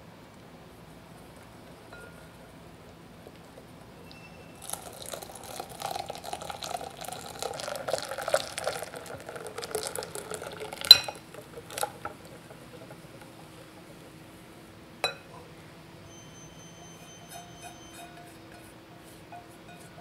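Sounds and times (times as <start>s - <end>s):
liquid pouring and splashing: 4.6s - 13.4s
whisk ticking against glass bowl: 4.6s - 14.2s, 16.5s - 20.0s
whisk clinking on bowl rim: 16.1s - 20.0s.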